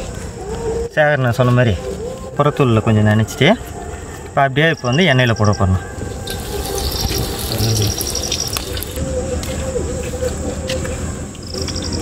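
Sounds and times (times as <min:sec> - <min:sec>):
crickets chirping: 0:00.0 - 0:12.0
oil sizzling deep-frying: 0:06.2 - 0:08.5.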